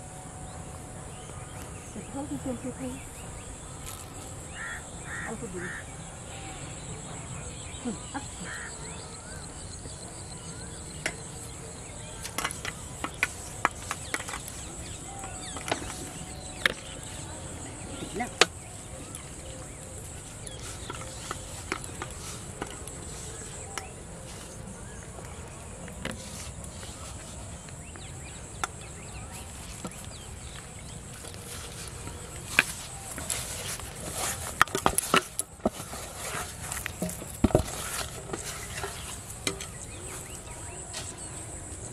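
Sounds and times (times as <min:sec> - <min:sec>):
crickets chirping: 0:00.0 - 0:41.9.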